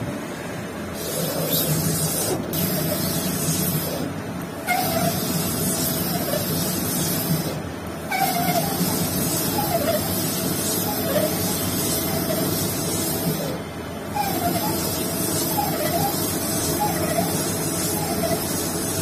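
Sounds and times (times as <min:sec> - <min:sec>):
lathe running: 0:01.0 - 0:19.0
short warbling squeak: 0:04.6 - 0:06.6, 0:08.1 - 0:12.6, 0:13.2 - 0:18.7.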